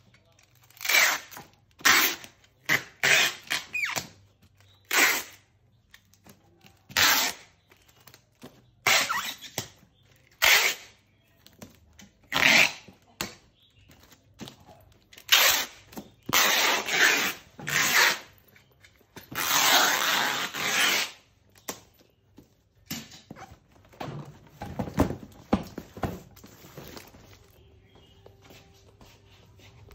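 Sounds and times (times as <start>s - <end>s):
packing tape screeching off dispenser: 0.6s - 4.1s, 4.8s - 5.4s, 6.9s - 7.6s, 8.8s - 9.7s, 10.3s - 11.0s, 12.3s - 12.9s, 15.2s - 18.4s, 19.3s - 21.3s.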